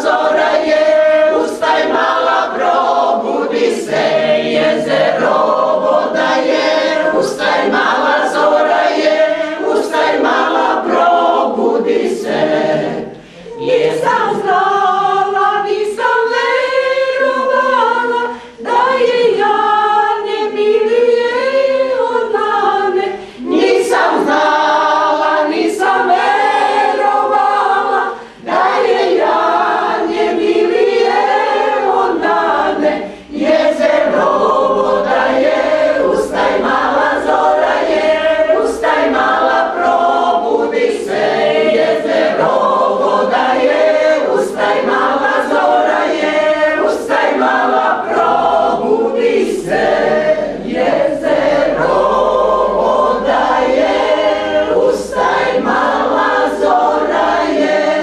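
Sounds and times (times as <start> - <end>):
choir singing a cappella: 0.0 - 58.0.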